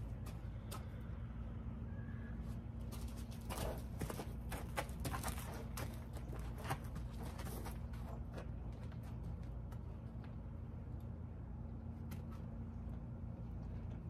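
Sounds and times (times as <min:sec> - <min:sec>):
horse hooves on sandy dirt: 0:00.0 - 0:01.2, 0:02.4 - 0:10.8.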